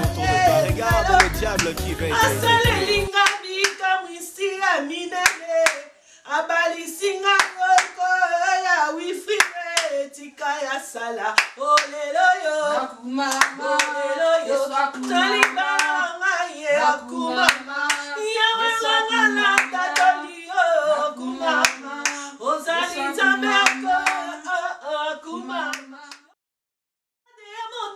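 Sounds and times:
woman singing: 0:00.0 - 0:26.3, 0:27.3 - 0:27.9
hand claps: 0:01.0 - 0:03.9, 0:05.2 - 0:05.8, 0:07.4 - 0:08.0, 0:09.4 - 0:09.9, 0:13.3 - 0:13.9, 0:17.4 - 0:18.0, 0:19.5 - 0:20.1, 0:23.6 - 0:24.2.

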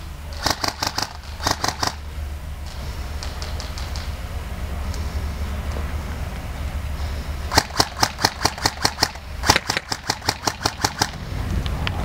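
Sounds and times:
airsoft rifle shots: 0:00.3 - 0:02.0, 0:07.5 - 0:11.2.

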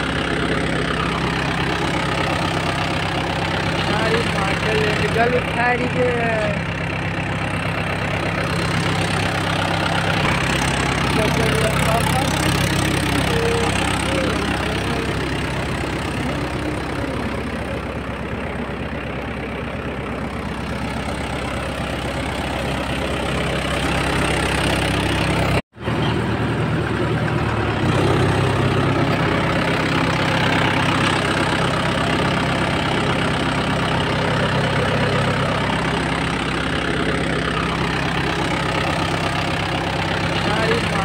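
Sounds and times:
diesel tractor engine idling: 0:00.0 - 0:41.0.

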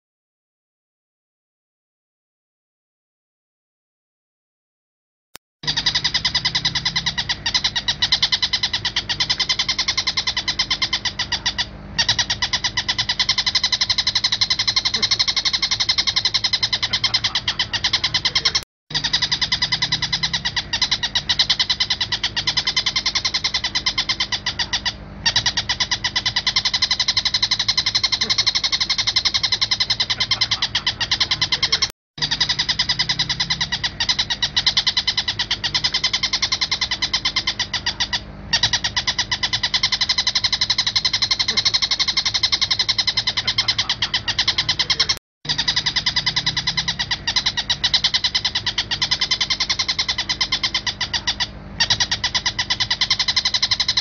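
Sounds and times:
bird chattering song: 0:05.6 - 0:54.0.

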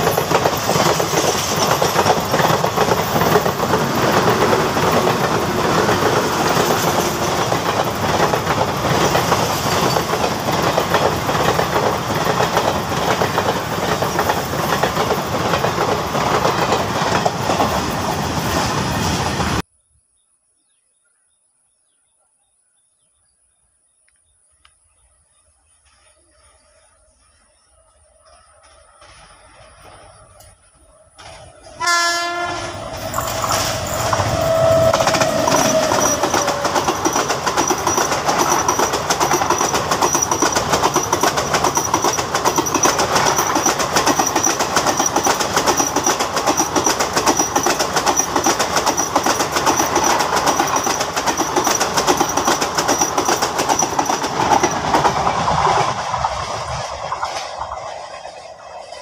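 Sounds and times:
train wheels clattering over rail joints: 0:00.0 - 0:19.6, 0:31.2 - 0:59.0
train horn: 0:31.8 - 0:37.0.

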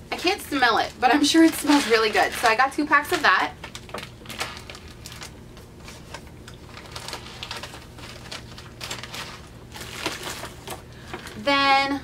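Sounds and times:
paper bag rustling and crinkling: 0:00.2 - 0:11.5.

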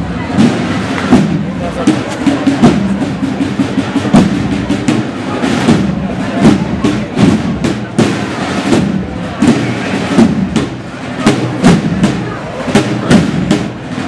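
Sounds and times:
crowd: 0:00.0 - 0:14.0
marching band: 0:00.0 - 0:14.0
marching drums beating: 0:00.0 - 0:14.0.

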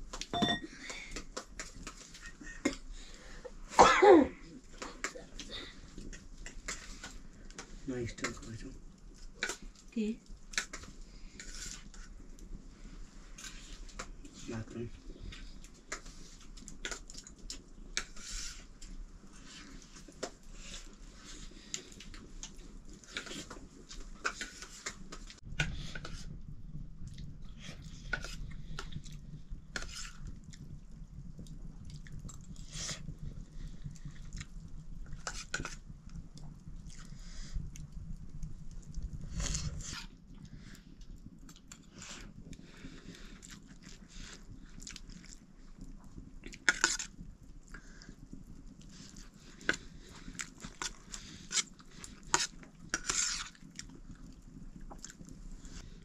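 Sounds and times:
low steady rumble: 0:25.0 - 0:46.5.

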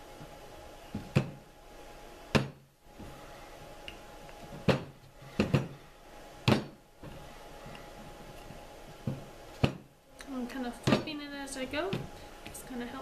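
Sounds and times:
objects knocking on a worktable: 0:00.9 - 0:01.4, 0:02.3 - 0:03.1, 0:04.5 - 0:05.8, 0:06.4 - 0:06.8, 0:09.0 - 0:09.9.

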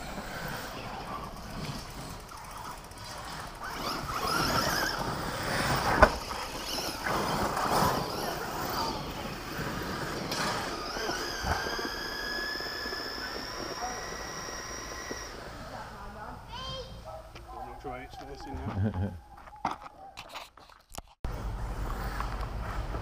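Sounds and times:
radio-controlled car motors whining: 0:00.0 - 0:16.3.

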